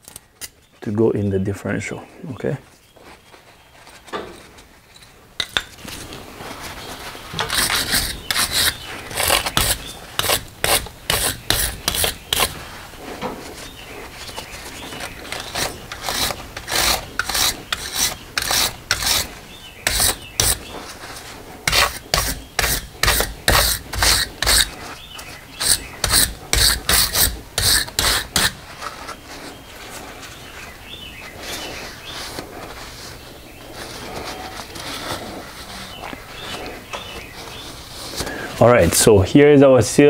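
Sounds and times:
rag rubbing: 0:04.4 - 0:38.9
metal scraper scraping dirt: 0:06.9 - 0:29.2.

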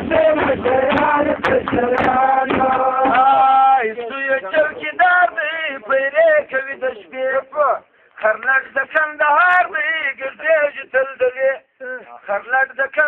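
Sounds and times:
drum beating: 0:00.0 - 0:03.7
men singing folk song: 0:00.0 - 0:13.0.

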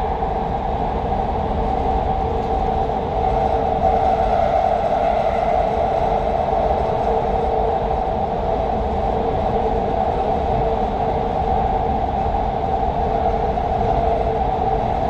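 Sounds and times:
train running through tunnel: 0:00.0 - 0:15.0.

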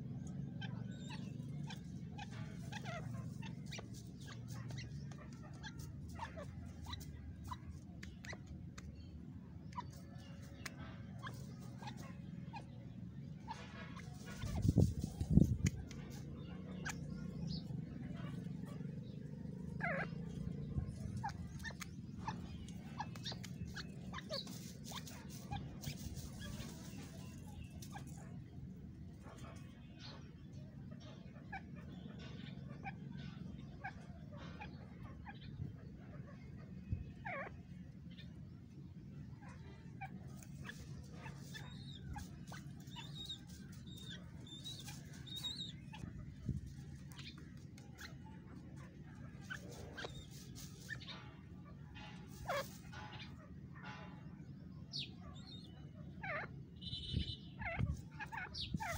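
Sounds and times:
bird chirping: 0:00.0 - 0:58.9
steady low hum: 0:00.0 - 0:58.9
dry straw rustling: 0:23.9 - 0:28.1, 0:40.3 - 0:47.8, 0:48.5 - 0:50.9.

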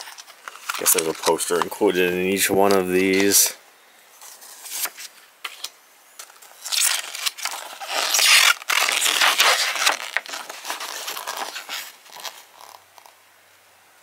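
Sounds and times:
paper rustling and crackling: 0:00.0 - 0:02.0, 0:04.2 - 0:13.2.

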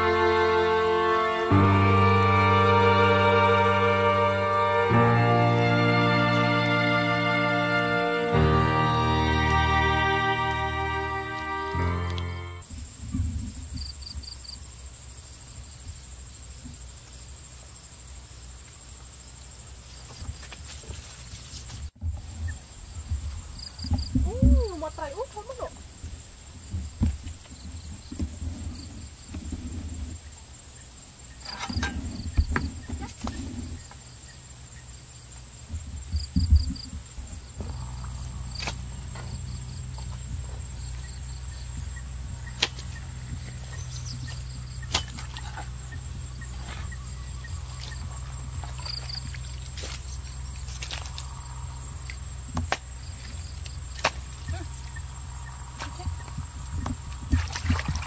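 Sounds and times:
insects buzzing: 0:00.0 - 0:58.0
low steady rumble: 0:36.6 - 0:58.0.

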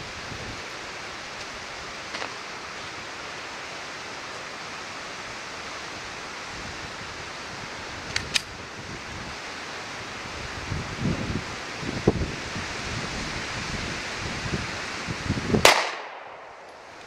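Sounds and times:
wind rushing on microphone: 0:00.0 - 0:02.0, 0:05.9 - 0:15.8
sharp clicks: 0:08.1 - 0:08.5.

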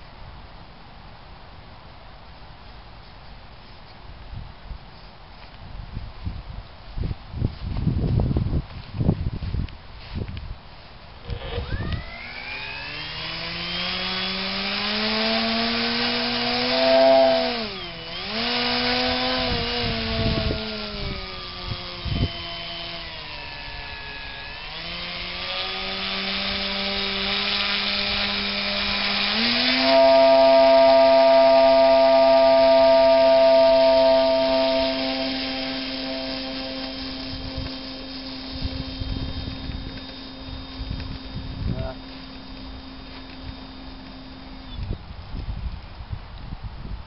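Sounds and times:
model plane motor and propeller whining: 0:11.2 - 0:46.0.

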